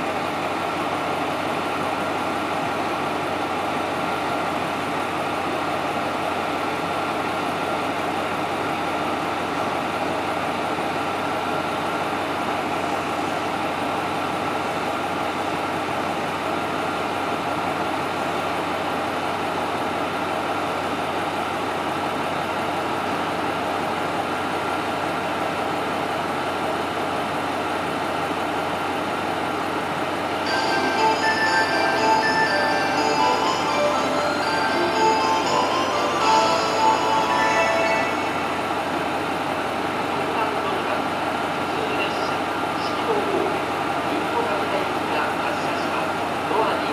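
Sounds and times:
diesel railcar engine idling: 0.0 - 46.9
station departure melody: 30.4 - 40.4.

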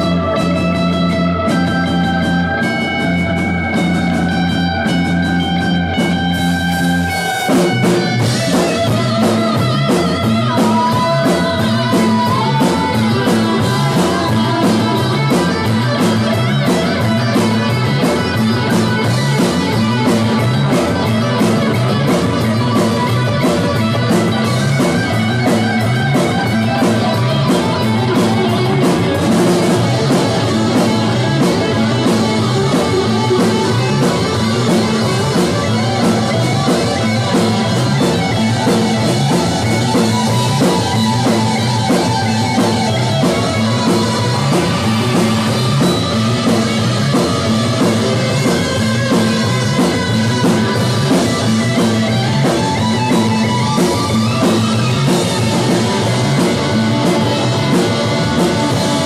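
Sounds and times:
bass guitar: 0.0 - 59.0
drum kit: 0.0 - 59.0
electric guitar: 0.0 - 59.0.

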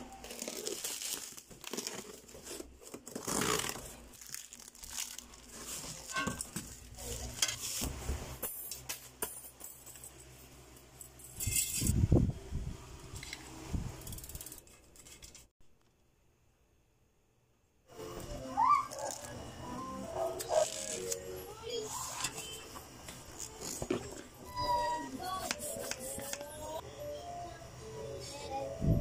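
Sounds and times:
crinkling and rustling packaging: 0.0 - 8.0, 18.9 - 19.5, 20.3 - 24.5.

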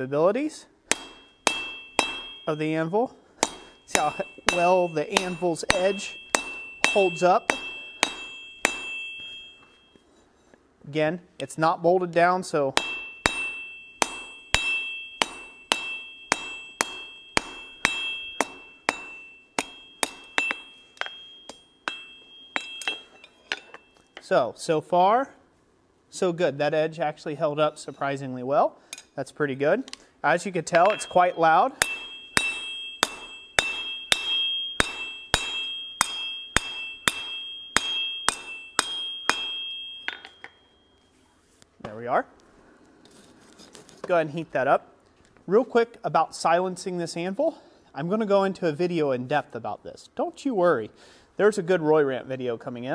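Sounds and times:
hammer striking hot steel: 0.8 - 10.0, 12.7 - 24.3, 30.7 - 41.0
anvil ringing: 0.9 - 10.0, 12.7 - 24.3, 30.7 - 41.1.

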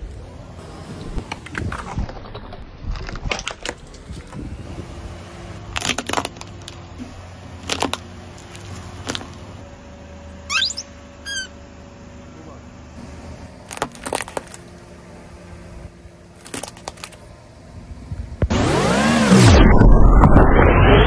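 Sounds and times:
plastic toys cracking under tyre: 1.3 - 4.4, 5.7 - 6.8, 7.6 - 9.4, 13.6 - 14.7, 16.4 - 17.2
rubber toy squeaking: 10.5 - 11.6.

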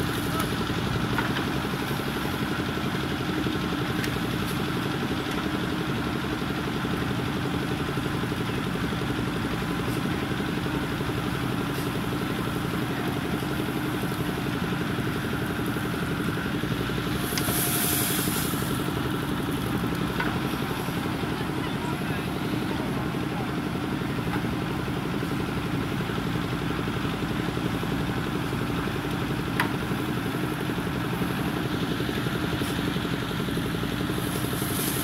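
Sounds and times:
diesel engine running: 0.0 - 35.0.

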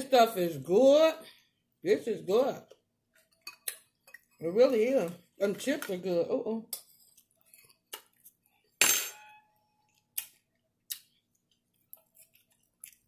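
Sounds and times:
metal fork clinking on plate: 8.8 - 9.5.

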